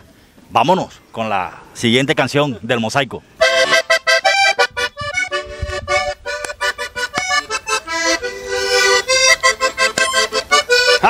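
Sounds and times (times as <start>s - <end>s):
button accordion melody: 3.4s - 11.0s.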